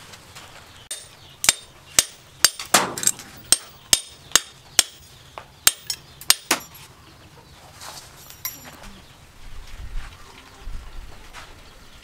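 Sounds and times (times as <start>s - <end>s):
knife striking wire on metal: 0.9s - 5.1s, 5.7s - 6.8s.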